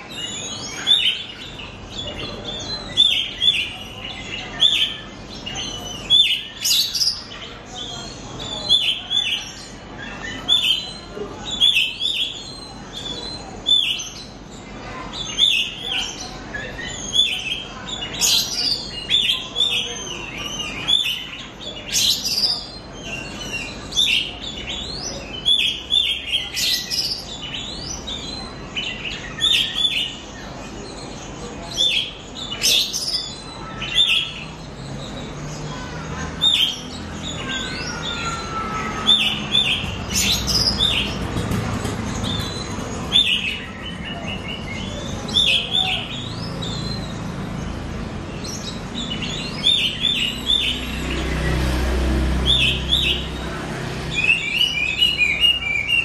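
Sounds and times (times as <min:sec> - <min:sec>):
bird singing chirps and whistles: 0:54.1 - 0:56.0.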